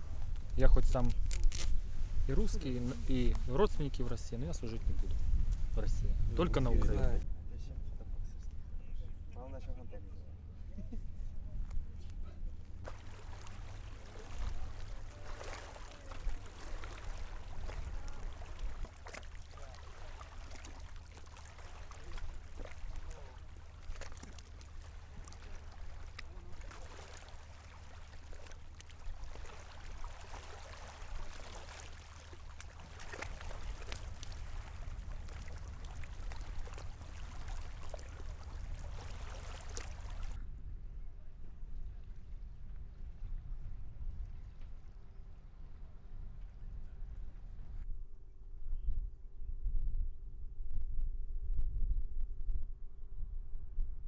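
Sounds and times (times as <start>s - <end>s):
low wind rumble: 0.0s - 19.4s, 33.3s - 54.0s
water splashing and lapping: 12.7s - 40.4s.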